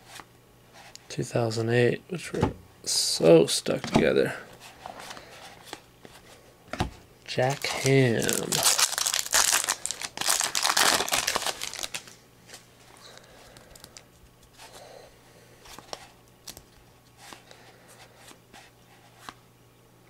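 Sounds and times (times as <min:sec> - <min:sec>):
cards clicking and rustling: 0:07.4 - 0:12.6
foil pack tearing and crinkling: 0:07.5 - 0:12.2.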